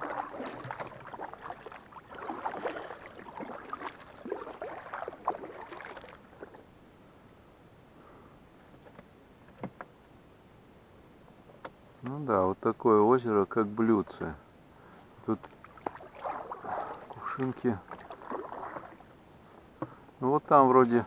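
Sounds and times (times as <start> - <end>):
water splashing from paddle strokes: 0.0 - 6.6, 15.5 - 19.1.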